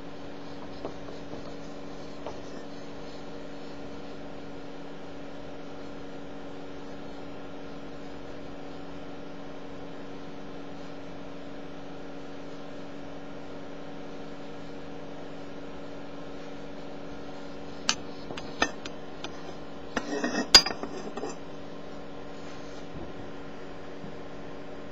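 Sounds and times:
sharp clicks and glassy clinks: 20.0s - 21.4s.

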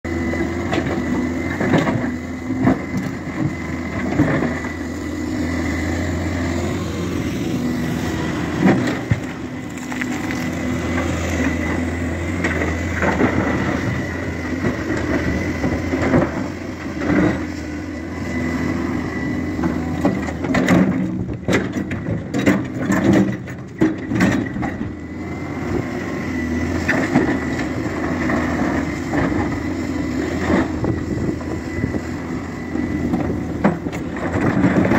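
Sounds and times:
diesel engine running: 0.0s - 34.9s
rock knocks and clatters: 9.1s - 10.6s
bucket scraping stone: 9.6s - 10.7s.

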